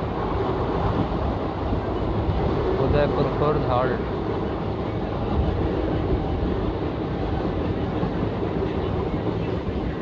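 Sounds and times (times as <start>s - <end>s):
train wheels rumbling on rails: 0.0s - 10.0s.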